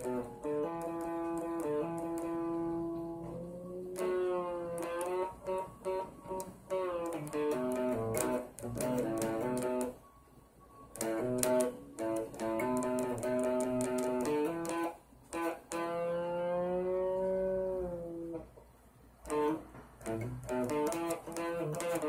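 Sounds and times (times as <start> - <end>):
guitar plucked notes and chords: 0.0 - 10.0, 10.9 - 18.6, 19.2 - 22.0.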